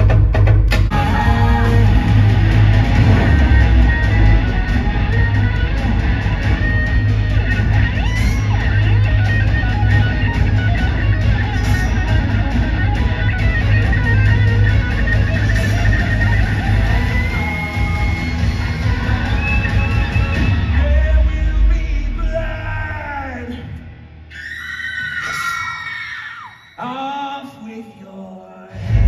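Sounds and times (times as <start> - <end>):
strong bass line: 0.0 - 24.3, 28.8 - 29.0
strummed guitar music: 0.8 - 20.8.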